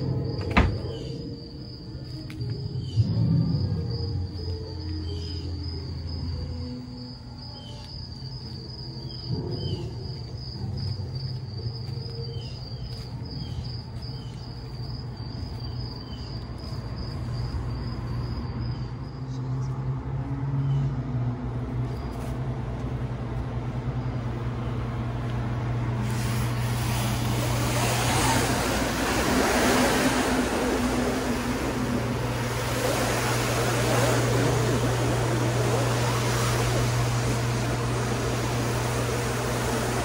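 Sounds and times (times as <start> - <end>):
low steady hum: 0.0 - 16.6, 17.2 - 40.0
high insect buzz: 26.0 - 40.0.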